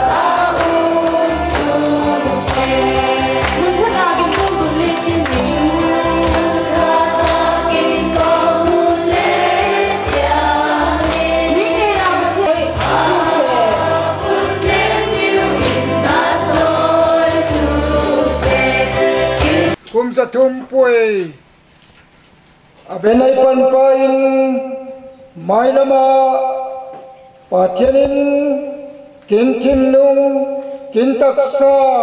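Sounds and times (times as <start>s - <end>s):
congregation singing a hymn: 0.0s - 19.8s
steady beat: 0.0s - 19.8s.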